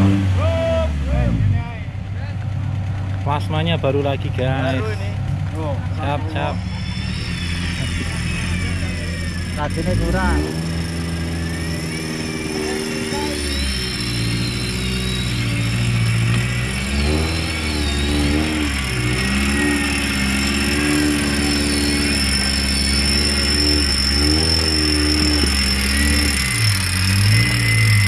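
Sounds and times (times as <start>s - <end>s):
engine revving under load: 0.0s - 28.0s
faint high whine: 6.4s - 28.0s.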